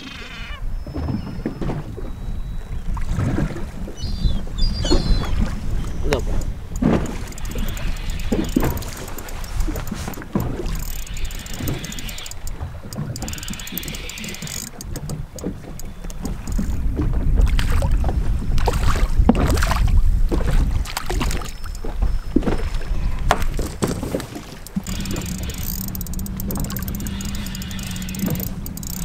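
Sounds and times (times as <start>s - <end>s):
water washing against hull: 0.0s - 29.0s
knocks and clatter of gear: 6.1s - 17.2s, 23.2s - 29.0s
steady low hum: 24.7s - 29.0s.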